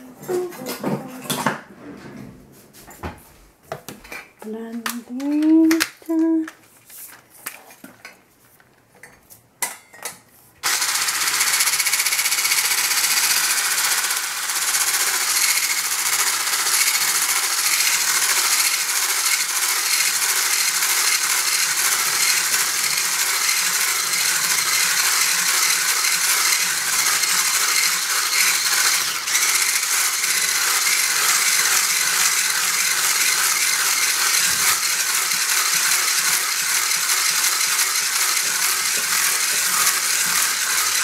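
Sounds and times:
electric mixer running: 0:10.6 - 0:41.0.

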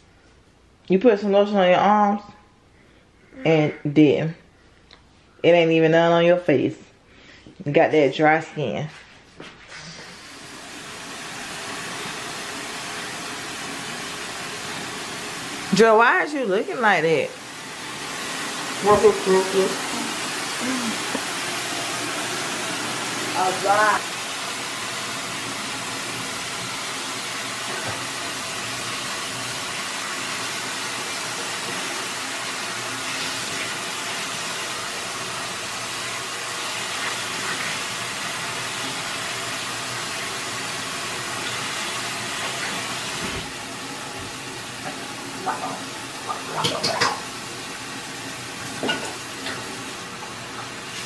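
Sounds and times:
faucet running into sink: 0:10.1 - 0:15.8, 0:17.4 - 0:45.2
knocks and clatters at sink: 0:46.6 - 0:47.3.

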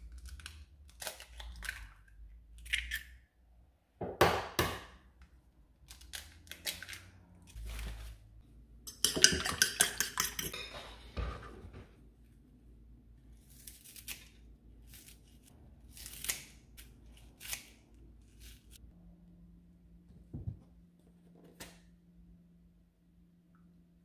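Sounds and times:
fork beating eggs in bowl: 0:08.9 - 0:10.7.

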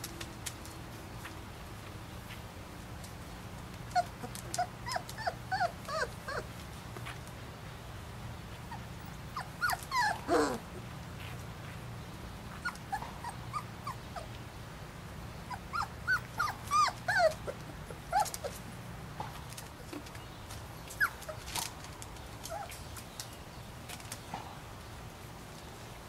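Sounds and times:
puppies whining and squeaking: 0:03.9 - 0:07.2, 0:08.6 - 0:10.8, 0:12.5 - 0:14.4, 0:15.5 - 0:18.7, 0:20.9 - 0:23.0.

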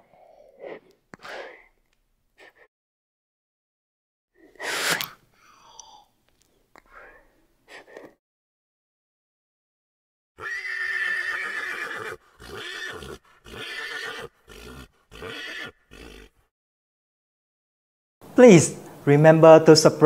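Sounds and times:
horse whinnying: 0:10.4 - 0:16.5.

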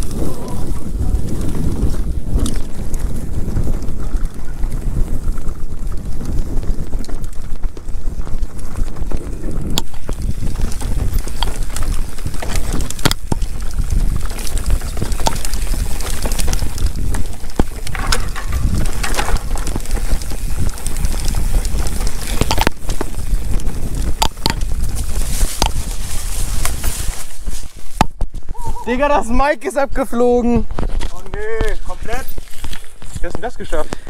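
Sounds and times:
wind buffeting microphone: 0:00.0 - 0:34.0
sharp knocks and rattles: 0:09.8 - 0:23.1.

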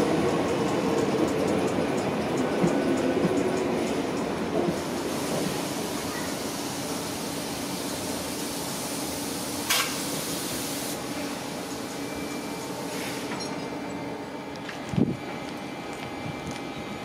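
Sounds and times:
train rolling noise: 0:00.0 - 0:17.0
short sharp hiss: 0:09.6 - 0:11.0.

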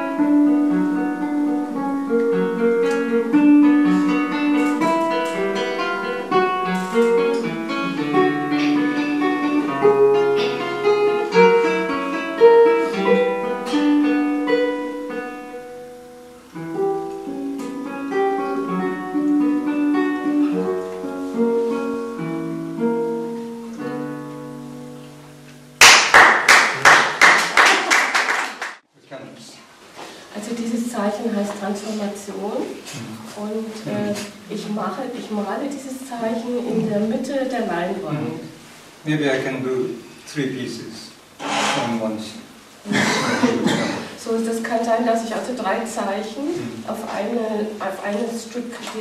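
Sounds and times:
fingerstyle classical guitar: 0:00.0 - 0:25.8
loud dense clapping: 0:25.8 - 0:28.8.

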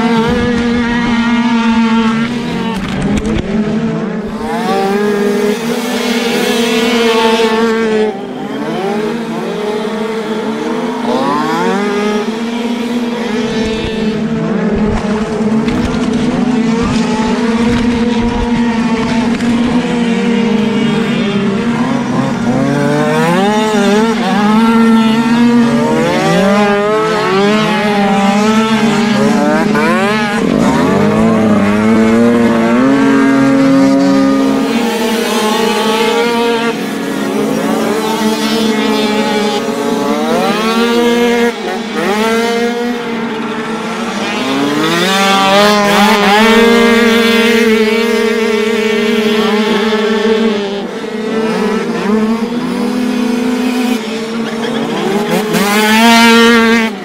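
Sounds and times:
dirt bike engines revving: 0:00.0 - 0:57.0.

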